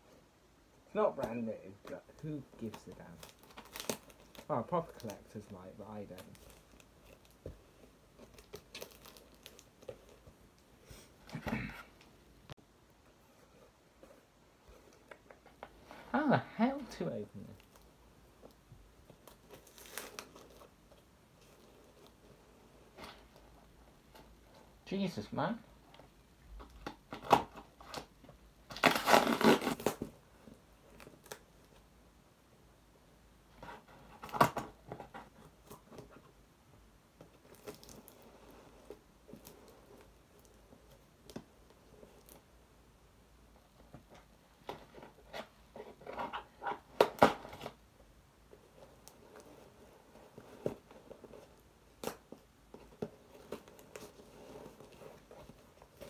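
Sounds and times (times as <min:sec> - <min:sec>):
cardboard tearing: 0:02.6 - 0:05.5, 0:19.3 - 0:20.7, 0:28.7 - 0:30.1
cardboard rustling: 0:13.0 - 0:24.8, 0:43.7 - 0:56.0.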